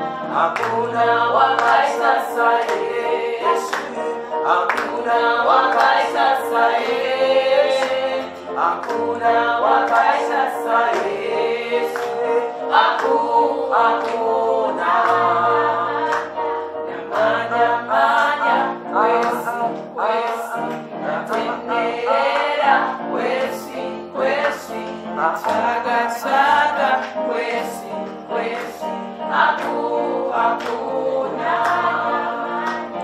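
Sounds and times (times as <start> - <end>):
choir singing gospel song: 0.0 - 33.0.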